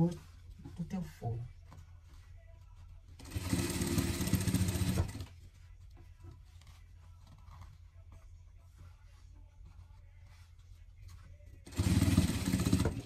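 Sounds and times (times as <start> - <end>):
sewing machine stitching: 3.2 - 5.3, 11.7 - 13.0.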